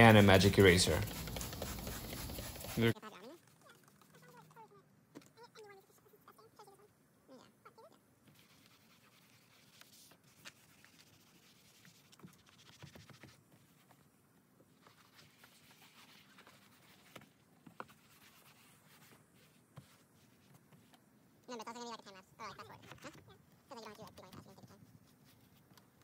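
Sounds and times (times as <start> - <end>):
faint scrubbing on plastic: 0.0 - 4.8, 8.2 - 14.1, 14.7 - 21.1.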